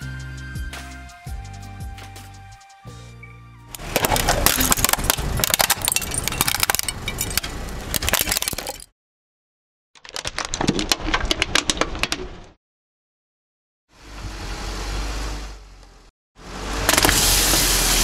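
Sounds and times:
plastic pot cracking under car tyre: 3.8 - 7.0, 10.0 - 12.5
broken plastic pieces clinking: 3.8 - 8.9, 10.0 - 12.1.

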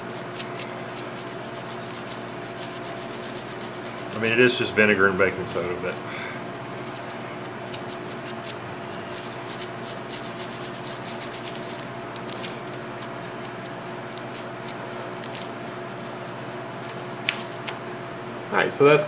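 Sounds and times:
toothbrush scrubbing metal: 0.0 - 4.5, 6.7 - 11.8, 13.0 - 16.6
faint steady hum: 0.0 - 19.0.

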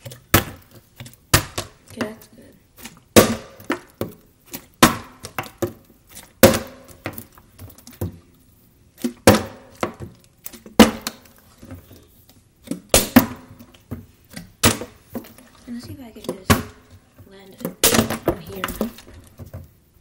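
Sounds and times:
plastic bottles knocking on stone: 3.1 - 4.2, 6.4 - 7.3, 9.1 - 11.4, 12.7 - 19.7.

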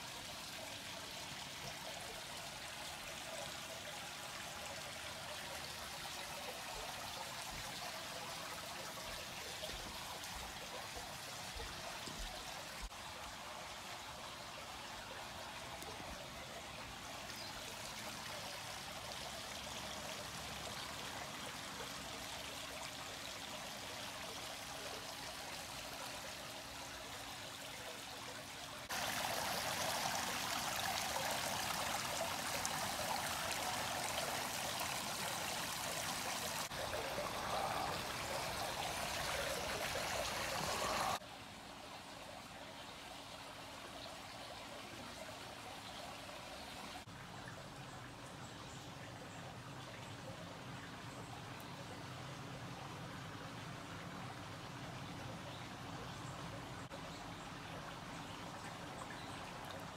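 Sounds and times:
water pouring from a pipe: 28.8 - 41.2
water rushing over fountain head: 28.8 - 41.2.

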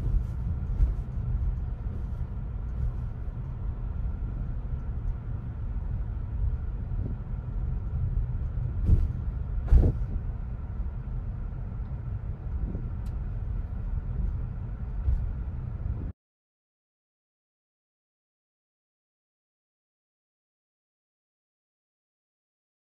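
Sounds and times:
road and tyre noise: 0.0 - 16.1.

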